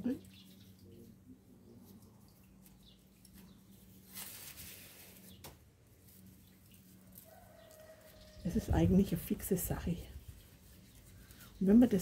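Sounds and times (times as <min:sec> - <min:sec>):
low steady hum: 0:00.0 - 0:12.0
soft rustle: 0:00.3 - 0:12.0.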